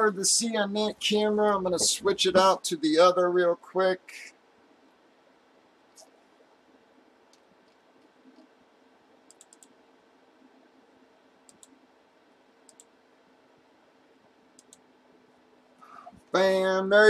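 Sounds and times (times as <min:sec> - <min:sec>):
computer mouse clicks: 0:07.3 - 0:08.5, 0:09.2 - 0:09.8, 0:11.4 - 0:11.8, 0:12.6 - 0:13.0, 0:14.6 - 0:14.9.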